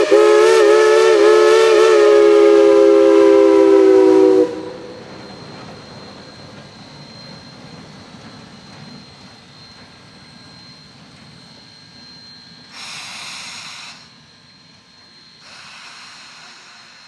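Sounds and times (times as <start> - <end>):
steam hissing: 0.0 - 17.0
steam locomotive rumble: 0.0 - 17.0.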